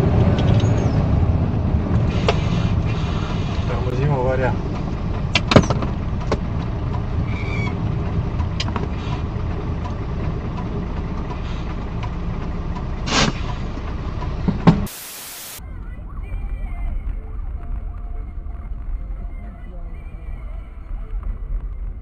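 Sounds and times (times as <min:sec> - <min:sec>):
vehicle engine and road rumble: 0:00.0 - 0:22.0
short hiss: 0:13.1 - 0:13.4, 0:14.9 - 0:15.6.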